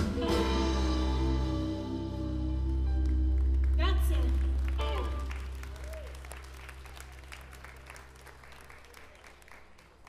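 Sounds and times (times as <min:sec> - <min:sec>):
audience applauding: 0:03.0 - 0:10.0.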